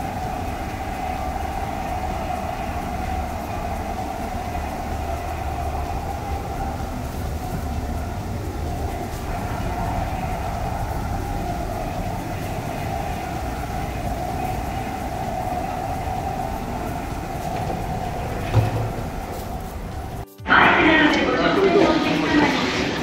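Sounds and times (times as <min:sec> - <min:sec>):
ship machinery rumble and hum: 0:00.0 - 0:20.2
dull thump: 0:17.4 - 0:20.1.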